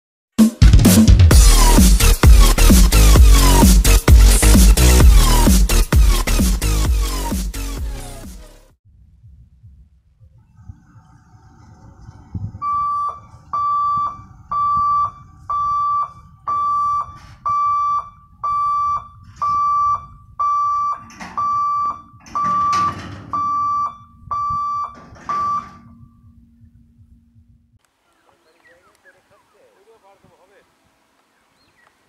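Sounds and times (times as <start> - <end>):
crossing warning hooter beeping: 12.6 - 26.7.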